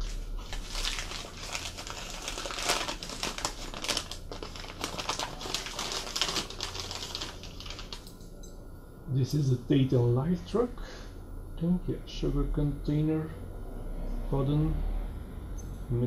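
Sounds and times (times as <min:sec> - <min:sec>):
newspaper crinkling: 0:00.0 - 0:08.1.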